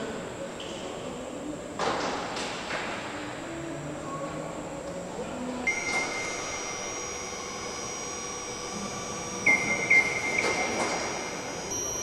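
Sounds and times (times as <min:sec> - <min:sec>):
machinery hum: 0:03.0 - 0:12.0
crane hoist high whine: 0:05.6 - 0:12.0.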